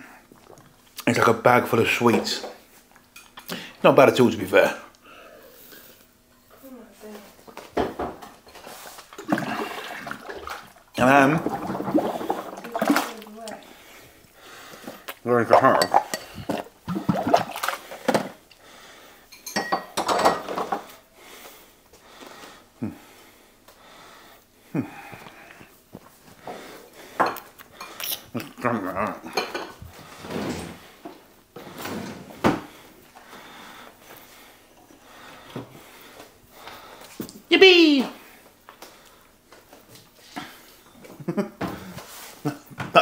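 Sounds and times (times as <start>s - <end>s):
dishes and cutlery clattering: 19.3s - 20.9s, 29.3s - 29.8s.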